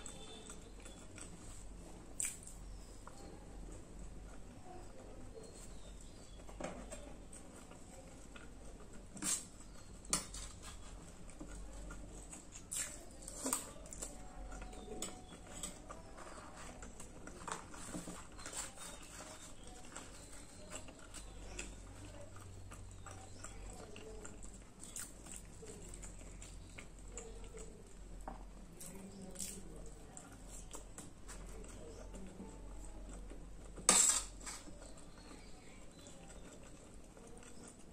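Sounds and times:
chewing and wet mouth sounds: 0.0 - 37.9.

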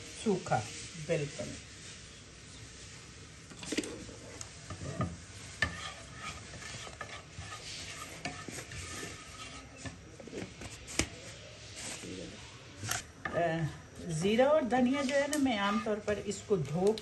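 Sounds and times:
seeds sizzling in hot oil: 0.0 - 17.0
spoon knocking and scraping pan: 4.6 - 11.1.

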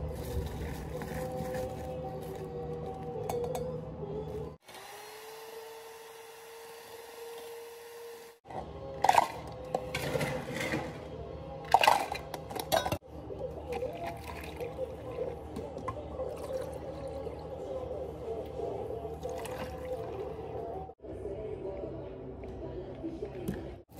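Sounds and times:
background music: 0.0 - 4.6, 8.4 - 23.9
ice cubes clattering into cups: 9.0 - 11.0, 11.7 - 13.0.

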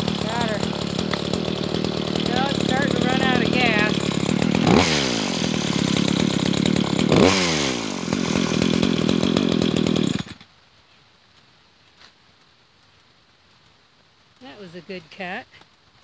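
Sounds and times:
chainsaw revving: 0.0 - 10.4.

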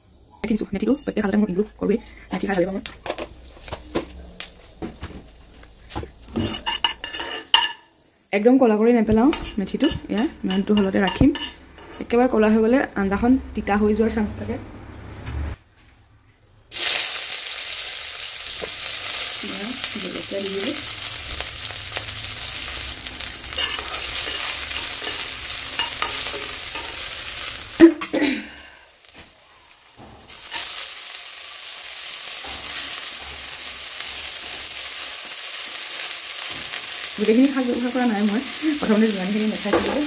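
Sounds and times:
vegetables sizzling in hot oil: 0.8 - 12.3, 16.7 - 40.0.

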